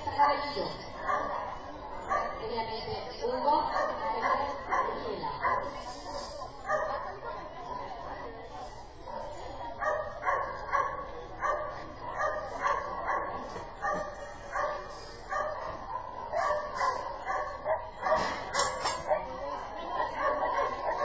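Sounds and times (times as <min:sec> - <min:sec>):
dog barking: 0:01.0 - 0:02.4, 0:03.7 - 0:05.8, 0:06.6 - 0:07.4, 0:09.1 - 0:19.4, 0:20.1 - 0:21.0.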